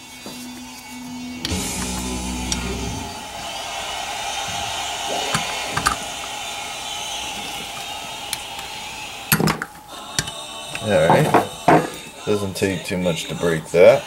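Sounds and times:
steady background hum: 0.0s - 12.3s.

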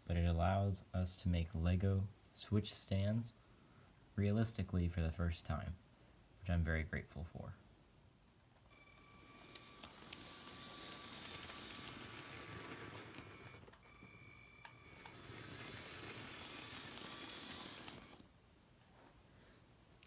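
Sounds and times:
thin steady whine: 8.6s - 18.3s
toy train wheels clicking on rails: 8.7s - 18.3s.

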